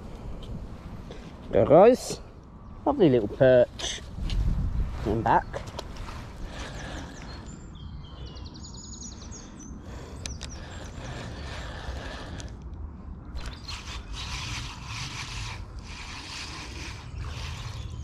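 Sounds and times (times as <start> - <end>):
wind rumble on microphone: 0.0 - 18.0
spinning reel winding: 13.4 - 17.9.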